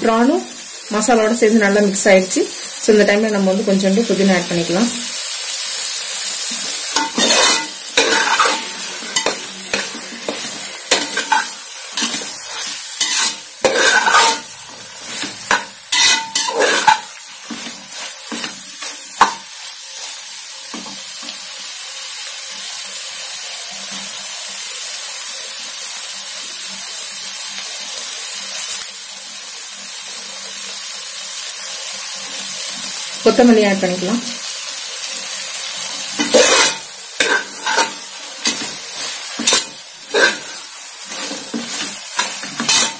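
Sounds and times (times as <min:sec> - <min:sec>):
food sizzling: 0:00.0 - 0:42.9
metal spatula scraping a pot: 0:06.9 - 0:19.4, 0:36.2 - 0:42.9.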